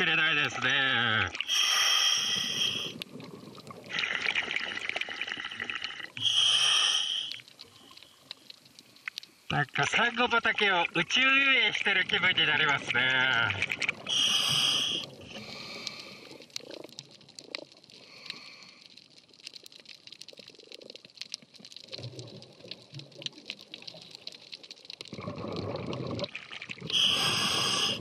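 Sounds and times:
breath hissing through regulator: 0:01.4 - 0:03.0, 0:05.2 - 0:08.0, 0:14.1 - 0:16.4, 0:26.9 - 0:28.0
bubbles rumbling underwater: 0:02.9 - 0:06.1, 0:20.4 - 0:28.0
sharp clicks and crackles: 0:07.3 - 0:09.5, 0:12.8 - 0:14.1, 0:15.8 - 0:26.9.

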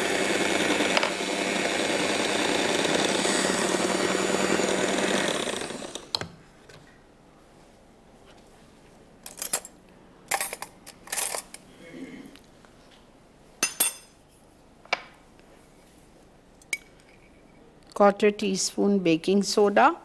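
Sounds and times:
electric hand mixer running: 0:00.0 - 0:06.2.

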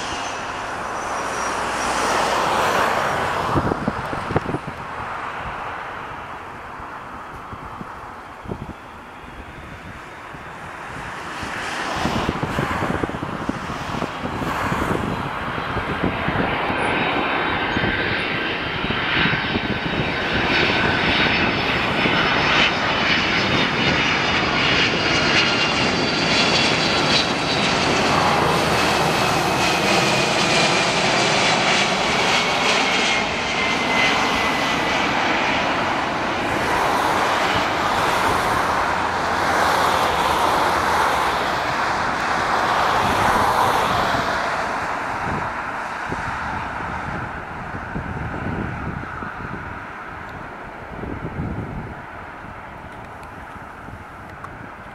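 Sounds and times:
jet airliner passing overhead: 0:00.0 - 0:54.9.

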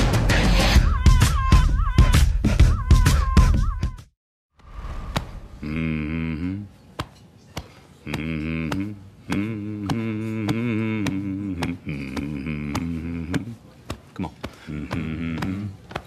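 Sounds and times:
man humming a chant: 0:05.6 - 0:06.8, 0:08.0 - 0:13.6, 0:14.2 - 0:15.9.

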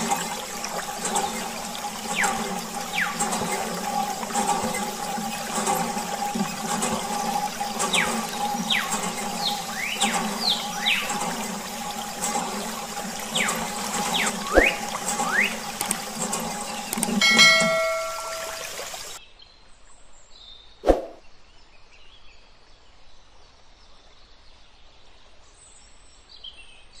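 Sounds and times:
water pouring and splashing: 0:00.0 - 0:19.2
short whistling glides: 0:13.4 - 0:15.6, 0:20.8 - 0:21.2
short chime: 0:17.2 - 0:18.9.

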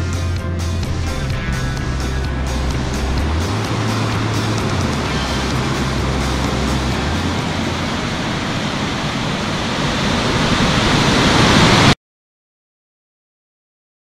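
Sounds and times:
low held tones: 0:00.0 - 0:09.8
water roaring from spillway: 0:00.8 - 0:12.0.

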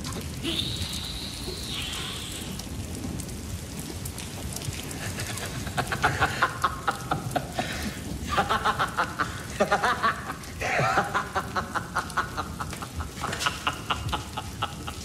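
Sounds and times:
low rumbling: 0:00.0 - 0:09.6
man laughing: 0:05.0 - 0:15.0.

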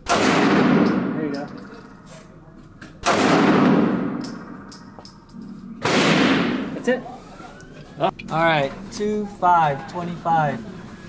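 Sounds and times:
pistol shots echoing indoors: 0:00.0 - 0:02.0, 0:03.0 - 0:05.2, 0:05.8 - 0:06.8.

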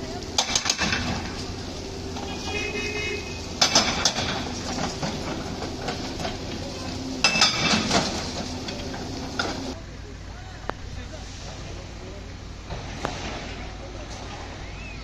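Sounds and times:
excavator engines running: 0:00.0 - 0:15.0
metallic clanking and ringing: 0:03.2 - 0:09.7.

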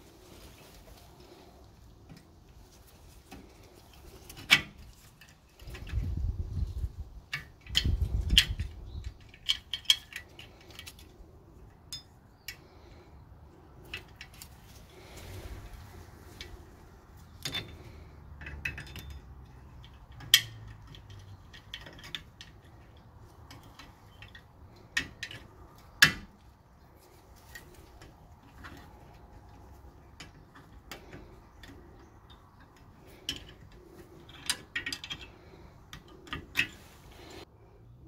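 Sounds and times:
pliers clicking and clinking on metal: 0:07.3 - 0:12.6, 0:17.4 - 0:26.3, 0:29.9 - 0:36.8.

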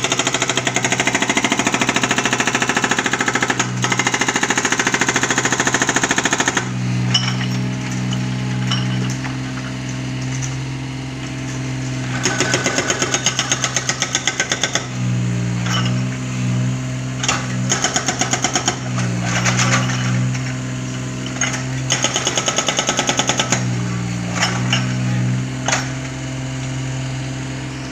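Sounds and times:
hydraulic breaker hammering concrete: 0:00.0 - 0:26.9
diesel engine running: 0:00.0 - 0:27.9.

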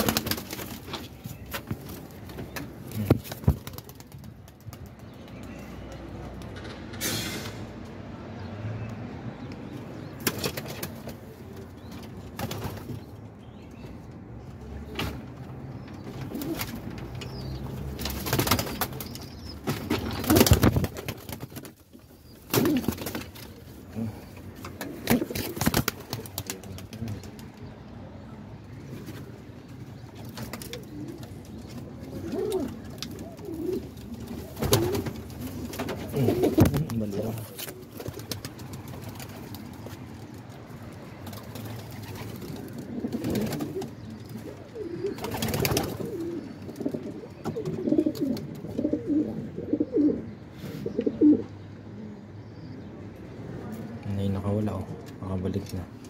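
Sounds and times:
wings flapping and rustling: 0:00.0 - 0:06.6, 0:10.0 - 0:13.2, 0:14.9 - 0:27.8, 0:28.8 - 0:49.1
pigeons cooing: 0:15.8 - 0:21.4, 0:22.1 - 0:27.7, 0:30.0 - 0:40.0, 0:41.2 - 0:52.9.

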